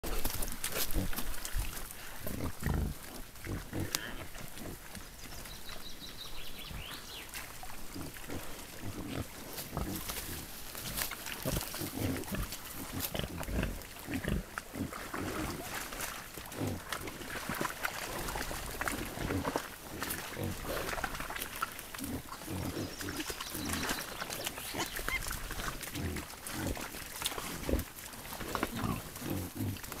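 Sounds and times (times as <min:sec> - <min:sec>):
boar grunts: 0:00.0 - 0:04.9, 0:07.9 - 0:10.5, 0:11.4 - 0:15.8, 0:16.5 - 0:17.4, 0:18.2 - 0:21.1, 0:22.0 - 0:24.0, 0:24.7 - 0:30.0
boars sloshing through mud: 0:00.0 - 0:30.0.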